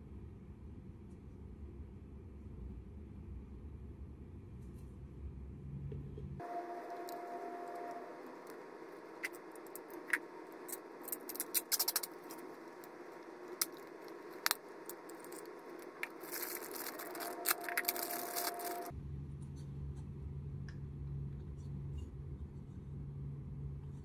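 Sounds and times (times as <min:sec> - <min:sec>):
low steady hum: 0:00.0 - 0:24.0
plastic bag crinkling: 0:09.3 - 0:18.9.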